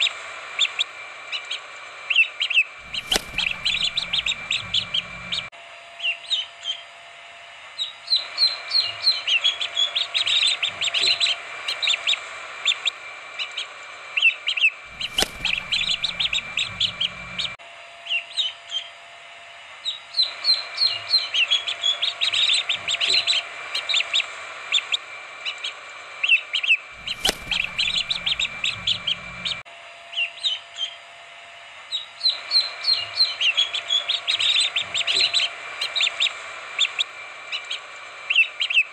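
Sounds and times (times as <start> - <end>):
chicks peeping: 2.5 - 5.5, 8.1 - 12.9, 14.5 - 17.6, 27.0 - 29.6, 32.2 - 38.9
click: 2.9 - 5.5, 15.0 - 17.5, 27.1 - 29.6.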